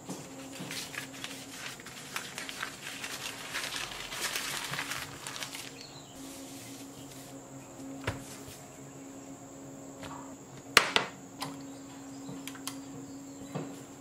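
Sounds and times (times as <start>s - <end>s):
paper rustling and crinkling: 0.0s - 8.7s.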